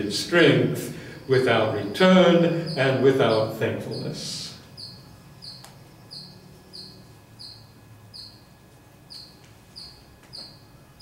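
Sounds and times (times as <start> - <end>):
low room hum: 0.0 - 11.0
faint high chirps: 2.4 - 11.0.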